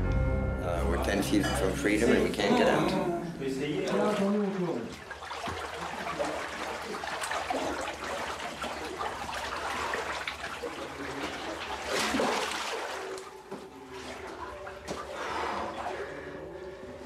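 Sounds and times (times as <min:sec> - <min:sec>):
water trickling and splashing: 0:03.6 - 0:17.0.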